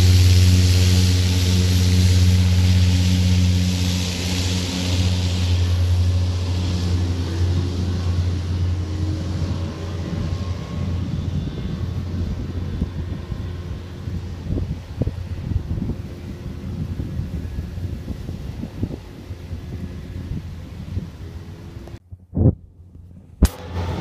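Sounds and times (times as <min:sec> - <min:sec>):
high rushing hiss: 0:00.0 - 0:09.7
propeller drone: 0:00.0 - 0:24.0.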